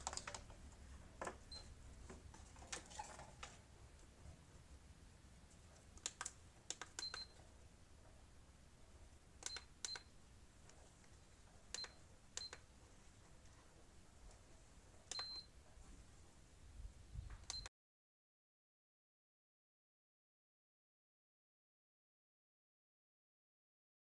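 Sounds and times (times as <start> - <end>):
button clicks: 6.0 - 7.4.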